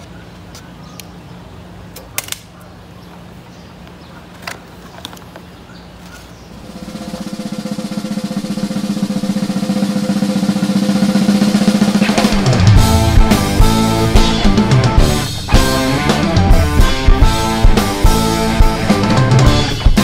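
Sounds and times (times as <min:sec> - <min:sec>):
snare drum roll: 0:06.7 - 0:20.0.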